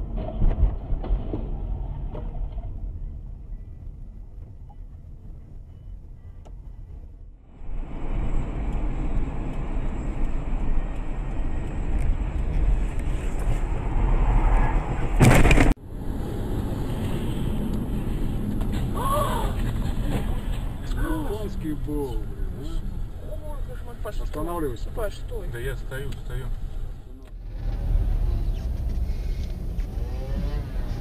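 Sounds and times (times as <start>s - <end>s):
car road and engine rumble: 0.0s - 31.0s.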